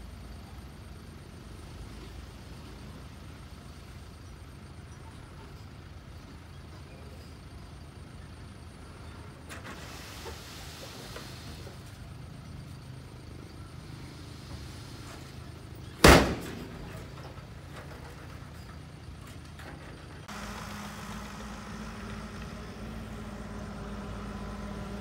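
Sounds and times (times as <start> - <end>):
heavy diesel machinery running: 0.0 - 25.0
loud sharp bang: 16.0 - 16.8.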